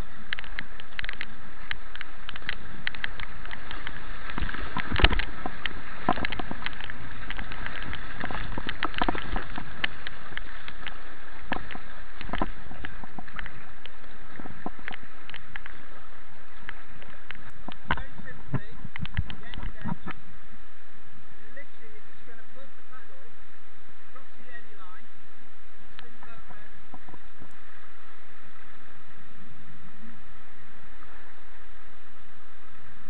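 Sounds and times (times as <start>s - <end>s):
paddle strokes splashing: 0.0s - 20.6s
river water rushing: 0.0s - 33.0s.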